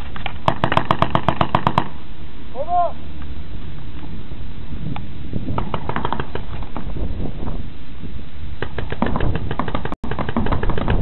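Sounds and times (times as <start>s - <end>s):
paintball markers firing: 0.2s - 1.9s, 5.6s - 6.8s, 8.6s - 11.0s.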